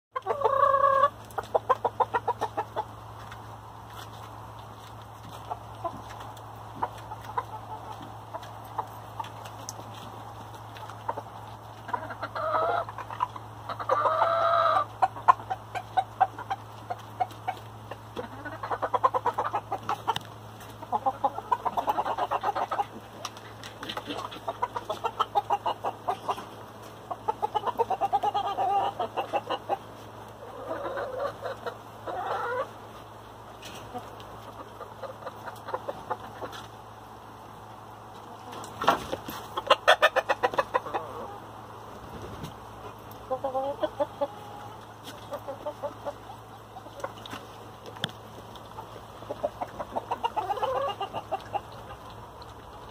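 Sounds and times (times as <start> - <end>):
hens and roosters clucking: 0.1 - 52.9.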